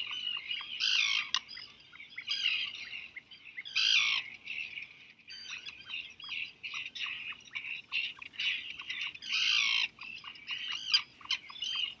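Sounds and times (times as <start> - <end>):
birds chirping: 0.0 - 12.0
harsh bird cries: 5.3 - 12.0.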